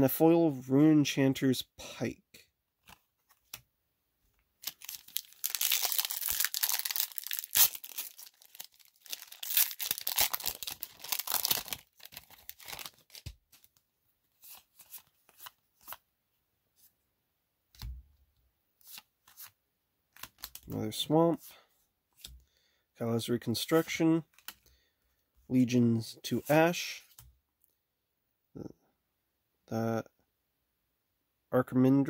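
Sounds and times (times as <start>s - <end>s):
foil wrapper tearing and crinkling: 4.6s - 13.7s
soft clicks of cards handled: 24.3s - 24.8s.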